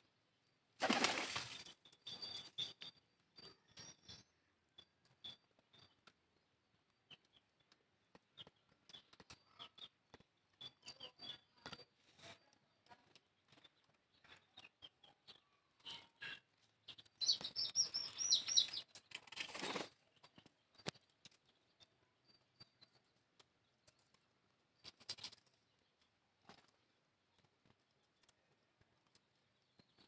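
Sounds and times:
chick peeping: 14.5s - 19.2s.

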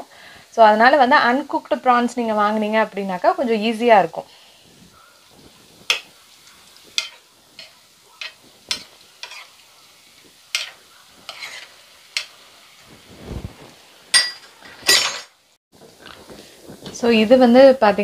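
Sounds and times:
prawns sizzling in oil: 0.0s - 18.0s
spatula crackles and taps: 4.8s - 12.6s, 15.8s - 17.0s.

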